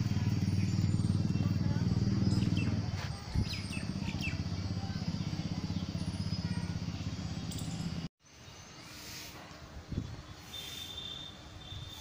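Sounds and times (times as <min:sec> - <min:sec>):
low motor drone: 0:00.0 - 0:08.1
faint outdoor background hiss: 0:00.0 - 0:12.0.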